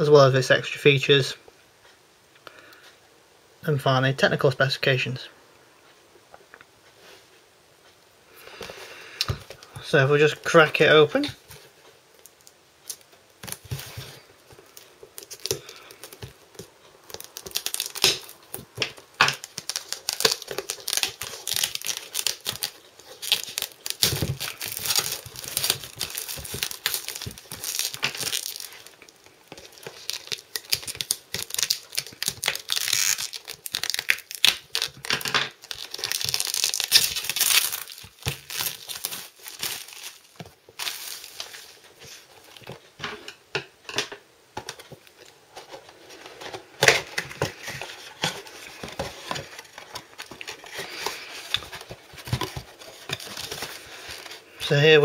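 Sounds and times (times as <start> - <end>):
plastic wrap crinkling and tearing: 12.2 - 43.0, 44.6 - 55.0
scissors cutting plastic wrap: 15.2 - 28.9, 29.5 - 41.4.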